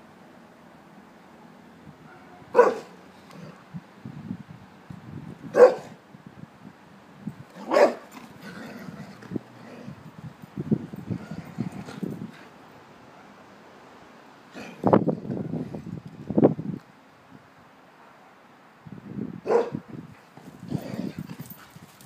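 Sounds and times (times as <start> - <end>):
dog barking: 2.0 - 3.0, 5.5 - 6.0, 7.6 - 8.0, 19.5 - 19.8.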